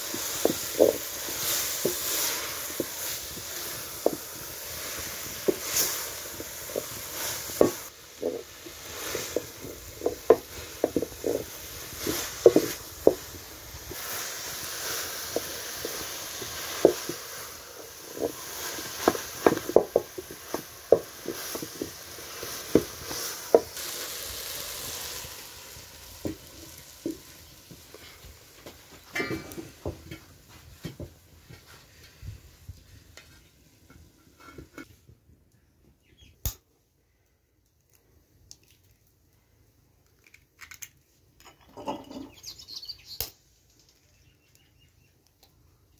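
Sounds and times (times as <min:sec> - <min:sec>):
cabbage sizzling: 0:00.0 - 0:30.8
spatula knocking and scraping pot: 0:00.1 - 0:14.0, 0:15.2 - 0:23.8.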